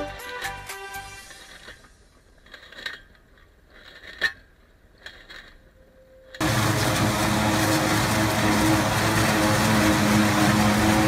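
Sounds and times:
forage harvester chopping roar: 6.4s - 11.0s
tractor engine hum: 6.4s - 11.0s.

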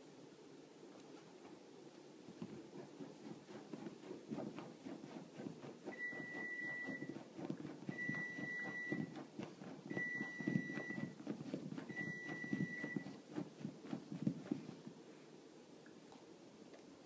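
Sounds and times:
dog scratching couch cushions: 2.4s - 14.8s.

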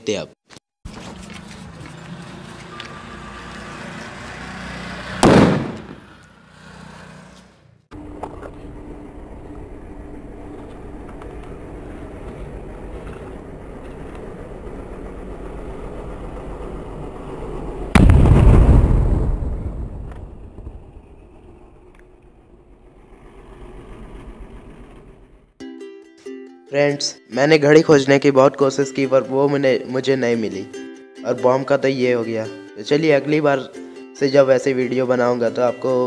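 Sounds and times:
firecracker bang: 5.2s - 6.2s, 17.9s - 21.6s
loud burst: 5.2s - 6.2s, 17.9s - 21.6s.

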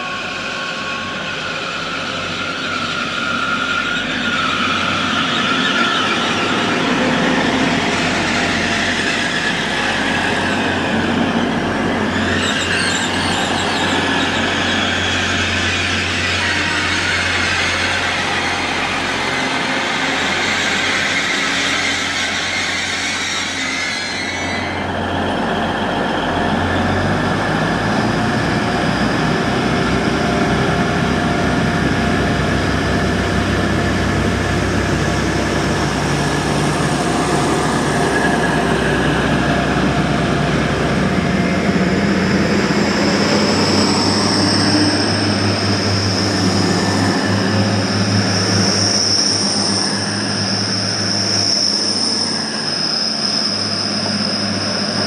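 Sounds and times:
train diesel engines running: 0.0s - 55.0s
high whine rising in pitch: 24.4s - 55.0s.

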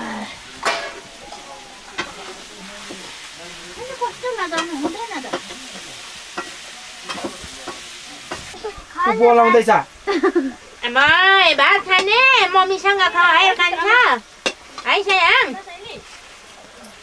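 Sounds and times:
steady hiss: 0.0s - 17.0s
hands and food clicking on steel plates: 0.6s - 3.1s, 4.4s - 8.6s.

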